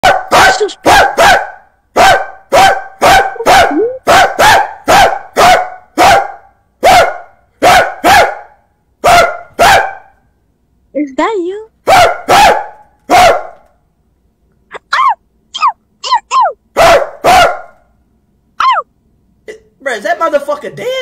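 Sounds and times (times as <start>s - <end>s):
man barking like a dog: 0.0s - 10.2s, 11.8s - 13.6s, 16.7s - 17.8s.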